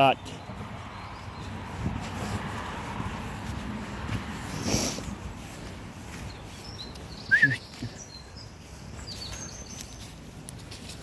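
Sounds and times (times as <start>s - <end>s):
birds chirping: 0.0s - 11.0s
low outdoor rustling: 0.0s - 11.0s
bird whistle: 7.1s - 7.7s.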